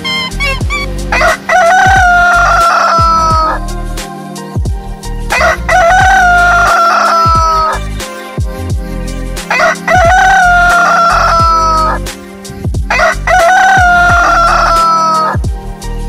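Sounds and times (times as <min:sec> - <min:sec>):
rooster crowing: 0:00.4 - 0:03.6, 0:05.3 - 0:07.8, 0:09.5 - 0:12.0, 0:12.9 - 0:15.4.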